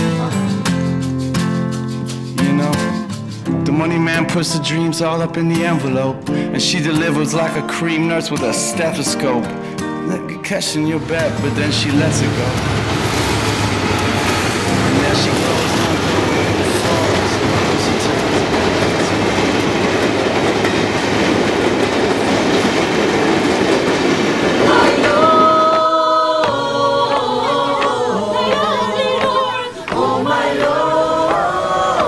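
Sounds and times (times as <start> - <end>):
people singing: 10.7 - 19.7, 24.2 - 32.0
train wheels rumbling on rails: 10.9 - 32.0.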